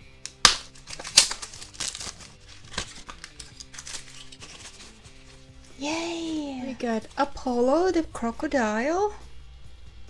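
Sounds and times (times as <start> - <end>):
foil packet crinkling and tearing: 0.0 - 7.4
soft background music: 0.0 - 10.0.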